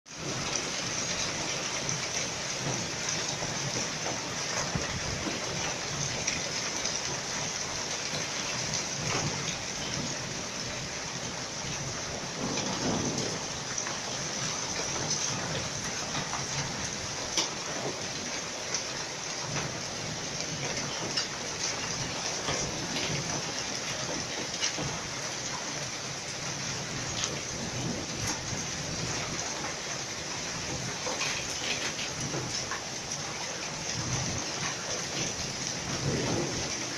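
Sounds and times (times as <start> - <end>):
hail and rain pelting: 0.1 - 36.9.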